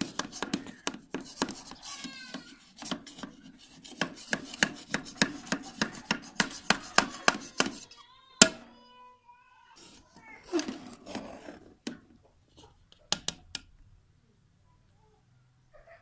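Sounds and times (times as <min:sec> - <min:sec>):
spoon knocking metal pot: 0:00.0 - 0:01.6, 0:04.0 - 0:07.8.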